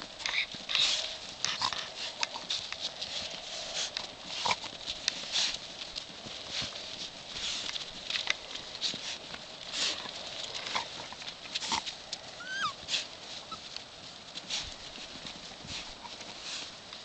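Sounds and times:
dogs scuffling in snow: 0:00.0 - 0:17.0
dog whimpering: 0:12.4 - 0:12.8.

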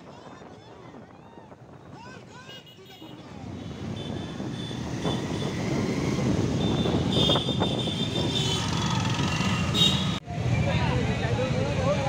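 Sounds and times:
motorcycle engines running: 0:03.4 - 0:10.3.

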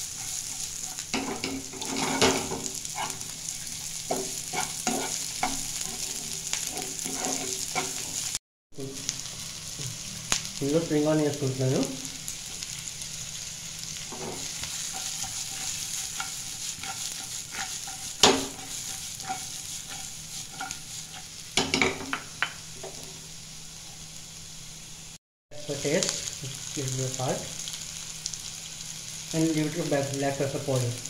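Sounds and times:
vegetables sizzling in oil: 0:00.0 - 0:31.0
utensil scraping and clattering pan: 0:00.1 - 0:03.2, 0:04.1 - 0:08.3, 0:14.1 - 0:22.2.

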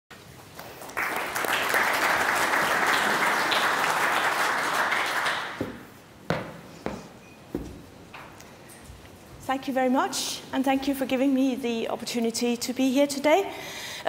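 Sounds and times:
audience applauding: 0:00.5 - 0:05.9
sharp knocks: 0:05.6 - 0:07.9.

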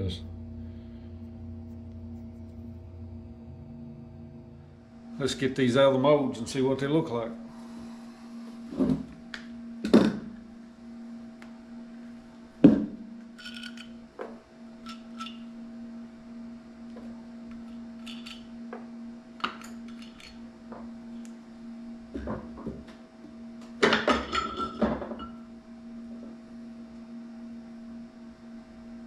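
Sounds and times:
low hum: 0:00.0 - 0:29.0.

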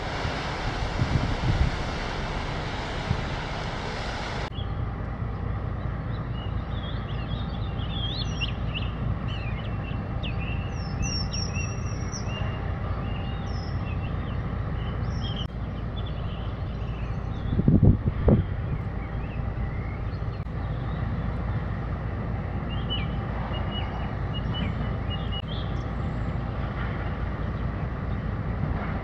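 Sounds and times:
loud rushing noise: 0:00.0 - 0:04.5
low rumble: 0:00.0 - 0:07.7
songbirds chirping and whistling: 0:05.8 - 0:21.7, 0:22.6 - 0:26.5.

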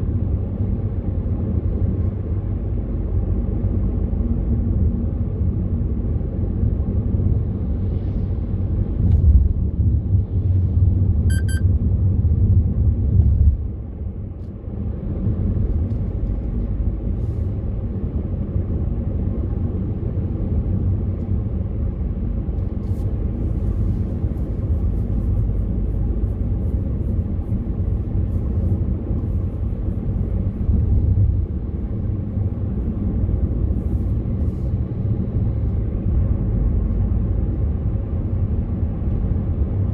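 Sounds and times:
car road and engine rumble: 0:00.0 - 0:39.9
short electronic beep: 0:11.3 - 0:11.6.

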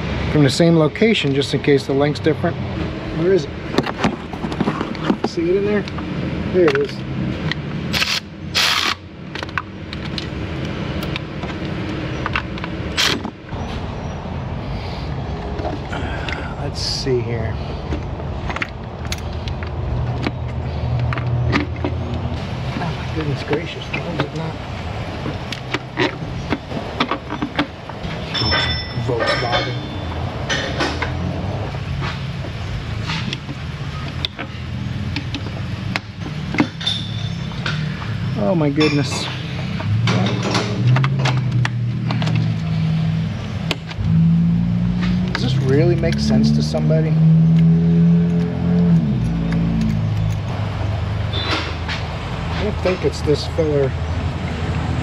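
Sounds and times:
low mechanical drone: 0:01.9 - 0:55.0
metallic clinks of hand tools: 0:28.3 - 0:30.7, 0:38.8 - 0:39.3.

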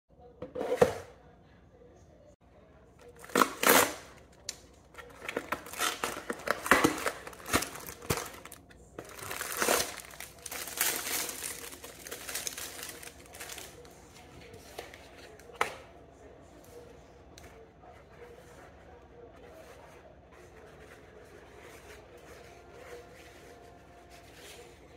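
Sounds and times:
cardboard and plastic tearing: 0:03.1 - 0:13.9.

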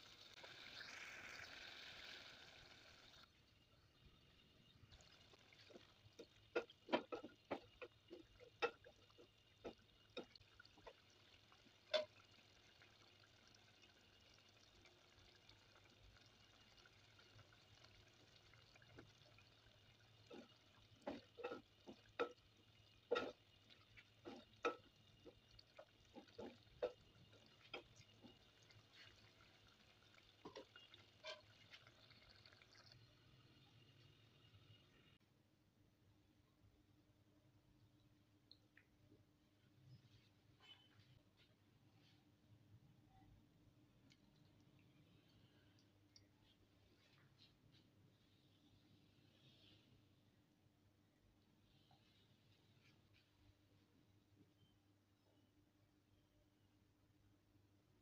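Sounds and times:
spatula stirring thick curry: 0:05.3 - 0:12.4, 0:19.9 - 0:31.9.

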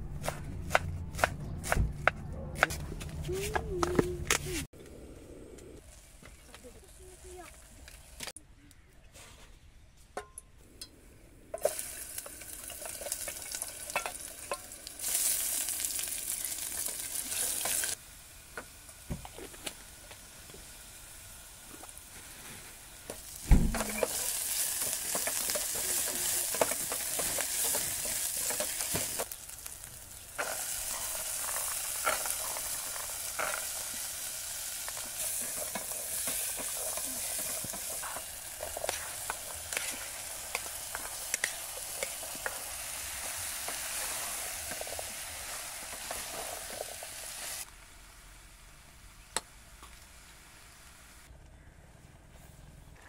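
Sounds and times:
vegetables sizzling in hot oil: 0:11.6 - 0:48.6
loud thump: 0:23.4 - 0:23.9
wooden spatula scraping pot: 0:23.9 - 0:29.3.

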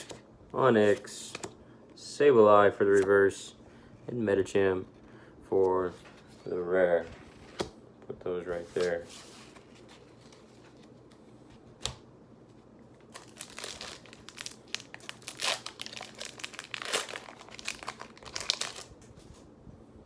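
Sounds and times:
foil wrapper crinkling and tearing: 0:13.1 - 0:18.9.

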